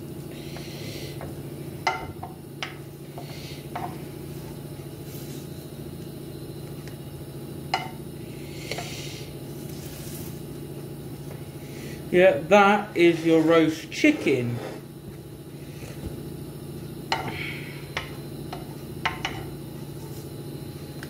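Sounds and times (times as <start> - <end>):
kitchen appliance hum: 0.0 - 21.0
oven glove rustling: 3.8 - 7.1, 9.4 - 11.6.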